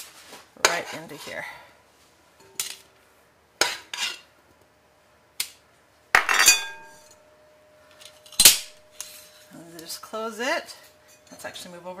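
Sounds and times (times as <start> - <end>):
metal spoon clinking on metal: 6.2 - 7.2.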